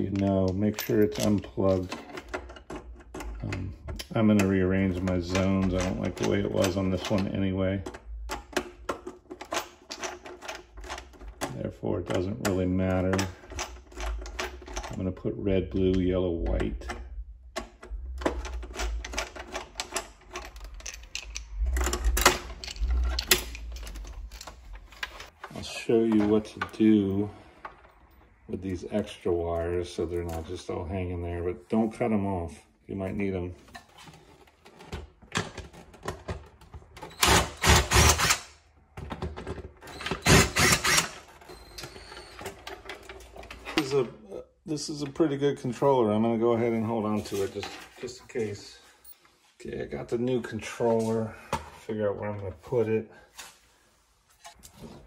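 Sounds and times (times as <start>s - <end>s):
cordless drill-driver whirring: 40.2s - 41.1s.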